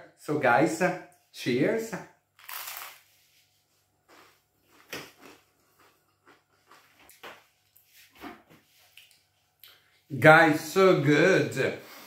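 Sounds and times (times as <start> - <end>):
toast crunching when chewed: 2.4 - 3.0, 4.1 - 7.2.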